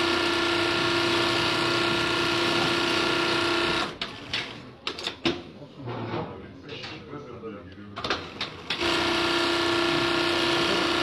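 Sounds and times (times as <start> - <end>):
sewing machine whining: 8.6 - 11.0.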